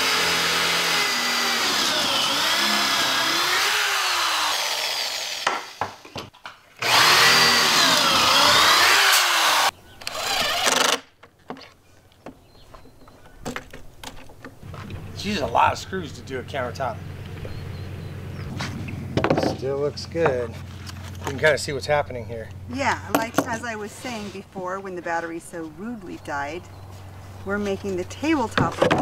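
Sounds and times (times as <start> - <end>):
drill boring into wood: 0.0 - 5.8, 6.8 - 11.1.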